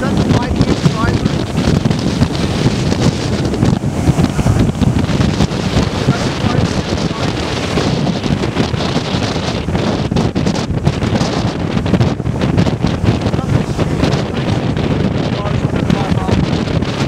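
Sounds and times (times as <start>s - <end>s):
heavy surf breaking: 0.0s - 17.0s
strong wind buffeting microphone: 0.0s - 17.0s.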